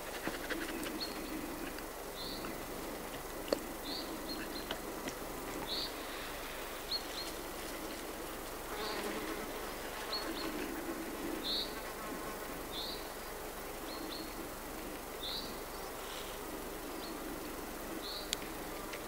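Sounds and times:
insect buzzing: 0:00.0 - 0:19.0.

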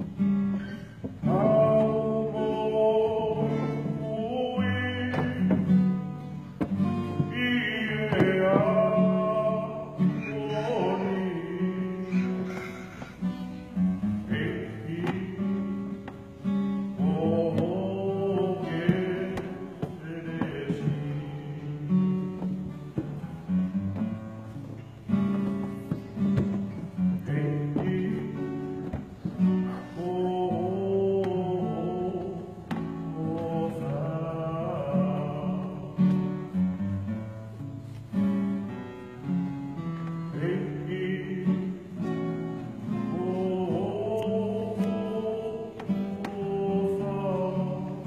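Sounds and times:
strummed acoustic guitar: 0:00.0 - 0:48.0
men singing in harmony: 0:01.2 - 0:05.7, 0:07.2 - 0:13.3, 0:17.0 - 0:22.0, 0:29.7 - 0:36.1, 0:43.0 - 0:48.0.

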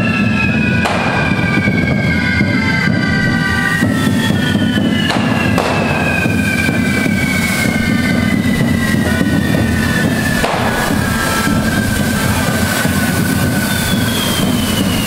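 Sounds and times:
fireworks hissing: 0:00.0 - 0:15.0
high falling whistle: 0:00.0 - 0:15.0
sharp firework crack: 0:00.1 - 0:15.0.

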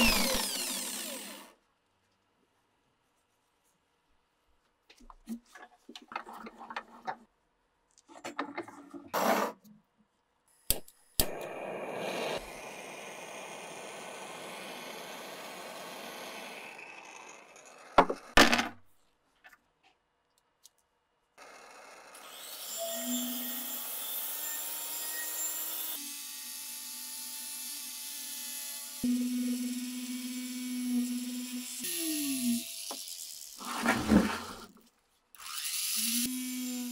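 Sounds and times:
rotary tool wire brush on steel: 0:32.4 - 0:36.9
steady scraping: 0:33.6 - 0:34.8.

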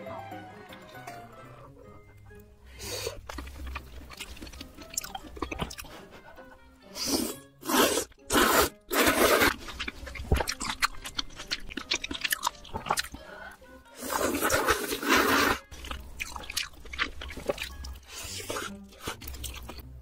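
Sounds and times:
wet chewing clicks: 0:03.2 - 0:06.0, 0:08.9 - 0:13.2, 0:14.2 - 0:19.9
slurping noodles: 0:06.9 - 0:19.8.

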